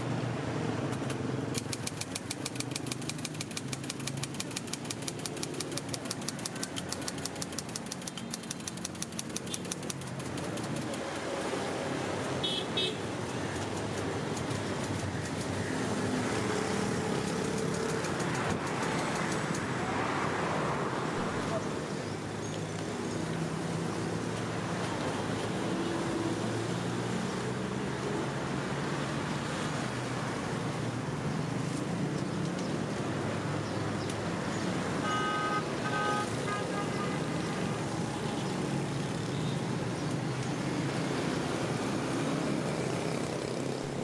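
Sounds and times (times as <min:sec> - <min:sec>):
street traffic noise: 0:00.0 - 0:44.0
typewriter key strikes: 0:01.0 - 0:11.0.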